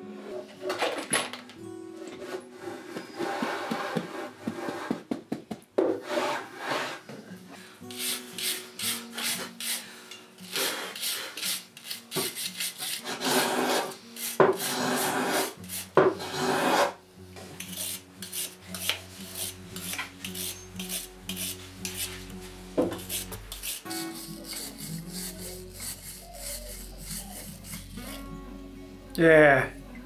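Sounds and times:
sanding stick scrubbing metal: 7.9 - 9.8, 10.5 - 17.0, 17.6 - 22.2, 22.8 - 28.2.

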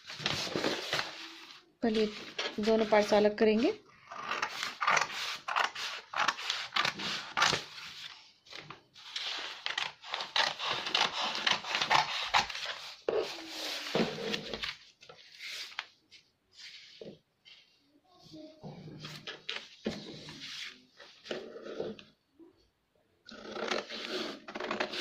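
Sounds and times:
paper rustling: 0.0 - 3.2, 4.5 - 17.7
scissors snipping paper: 4.2 - 7.8, 9.3 - 12.8.

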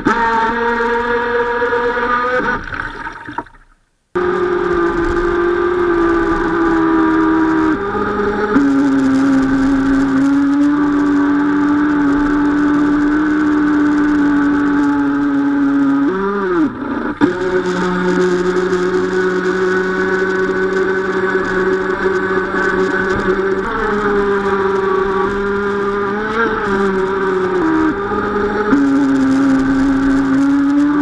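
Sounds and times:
electric motors whining: 16.0 - 31.0.

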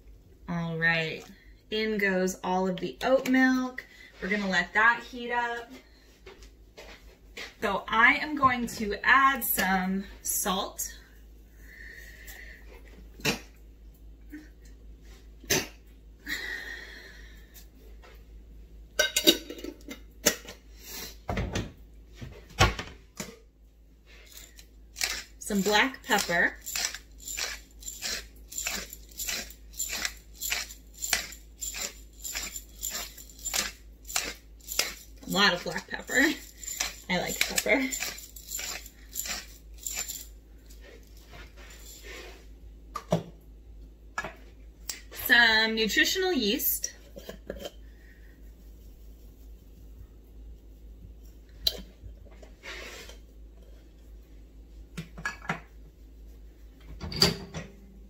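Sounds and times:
low steady hum: 0.0 - 58.0
pepper mill grinding: 24.3 - 40.8, 41.7 - 42.2.

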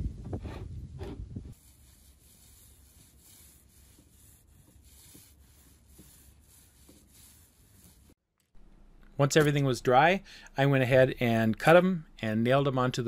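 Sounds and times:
paint rollers rubbing on wood: 1.5 - 8.2.

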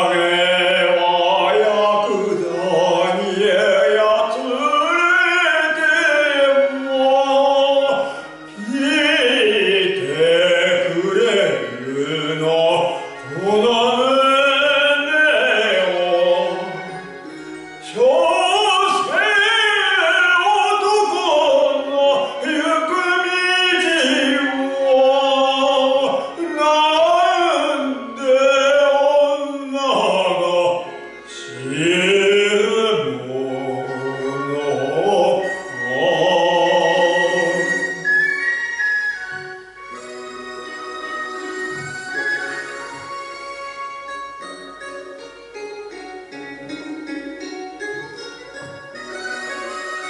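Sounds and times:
man singing operatically: 0.0 - 38.4.

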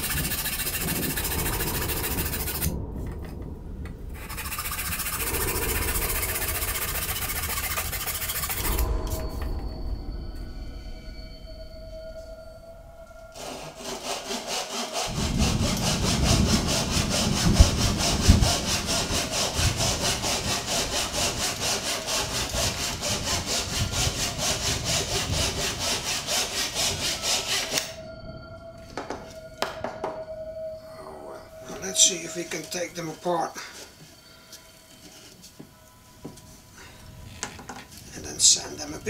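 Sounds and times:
hand saw cutting wood: 0.0 - 2.7, 4.2 - 8.9, 13.4 - 27.9
knocks: 29.0 - 30.3.

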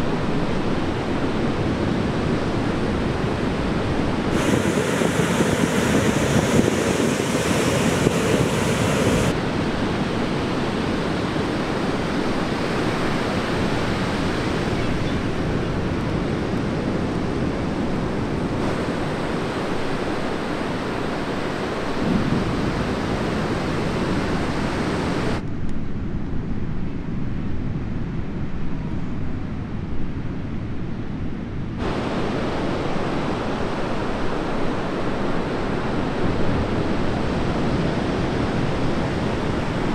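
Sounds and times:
wind buffeting microphone: 0.0 - 39.9
waves breaking: 2.2 - 25.4.

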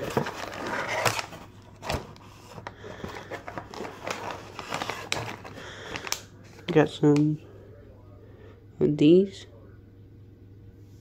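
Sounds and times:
cardboard flap rustling: 0.0 - 6.2
plastic bags crinkling: 0.0 - 7.0.

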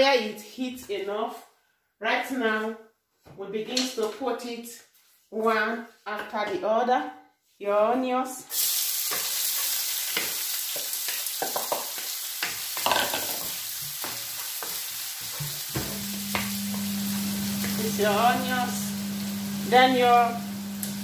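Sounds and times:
onions sizzling in oil: 8.5 - 21.0
spoon stirring in pan: 9.0 - 18.4.

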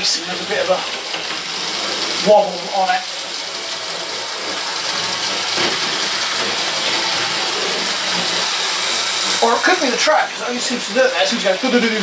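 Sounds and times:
model train motor whirring: 3.1 - 12.0.

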